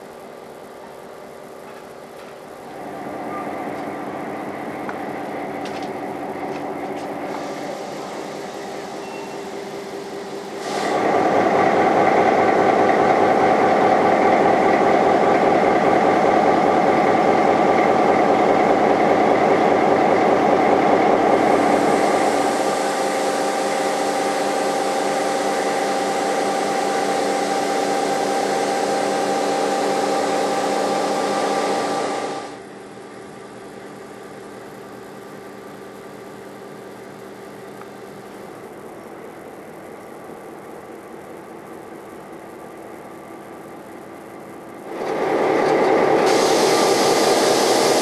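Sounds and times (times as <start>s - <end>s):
steady hiss: 0.0s - 11.3s, 46.1s - 48.0s
diesel locomotive engine idling: 0.0s - 48.0s.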